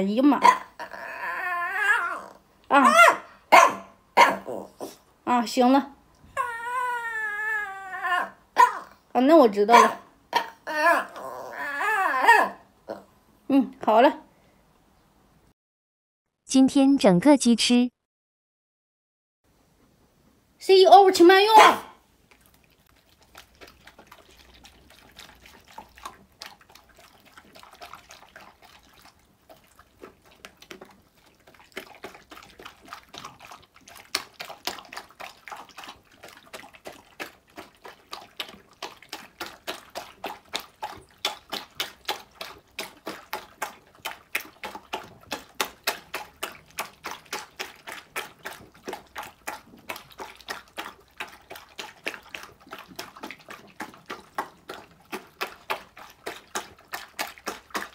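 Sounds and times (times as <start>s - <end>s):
dogs chewing wet food: 22.2s - 57.9s.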